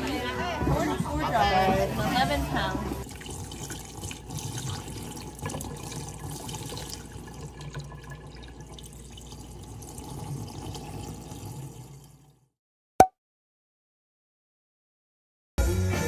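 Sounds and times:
running water splashing: 1.9 - 12.2.

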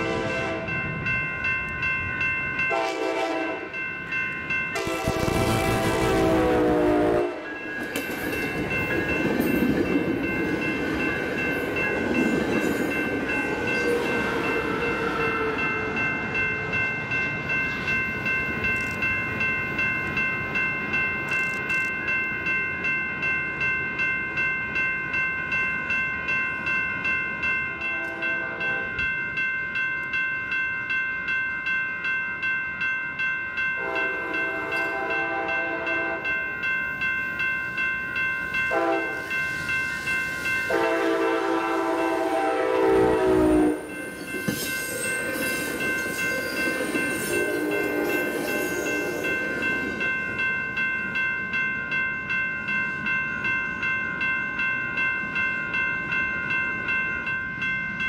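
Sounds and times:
train horn blast: 0.0 - 0.7, 2.7 - 3.7, 4.8 - 7.5, 33.8 - 36.3, 38.7 - 39.1, 40.7 - 43.8
crossing bell ringing: 0.0 - 58.0
passing train rumbling: 0.0 - 58.0.

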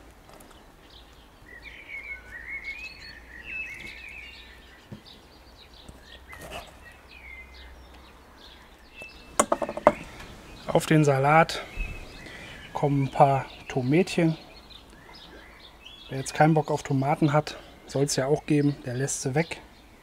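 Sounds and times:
songbird twittering: 0.5 - 20.0
soft knocks: 9.4 - 10.1.

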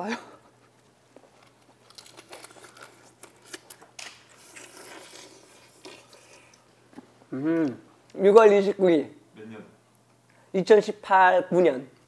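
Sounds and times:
food being picked apart: 1.3 - 7.0.

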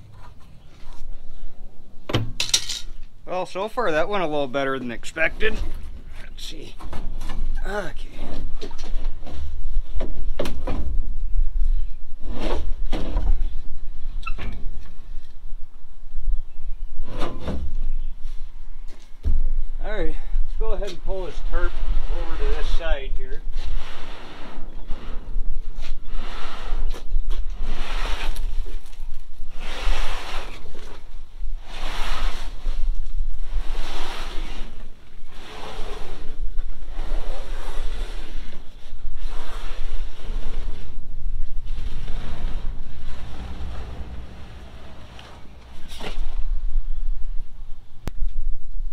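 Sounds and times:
wind buffeting microphone: 38.2 - 48.9
metal scraping and clunking: 39.2 - 46.6
low rumble: 39.9 - 48.9
tarp rustling: 41.6 - 46.6.

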